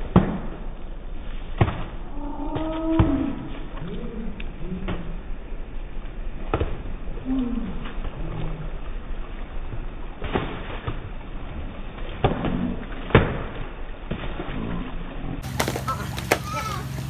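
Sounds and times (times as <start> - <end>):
steady low hum: 0.0 - 17.0
water splashing in pool: 0.0 - 17.0
pool noodles slapping water: 6.4 - 17.0.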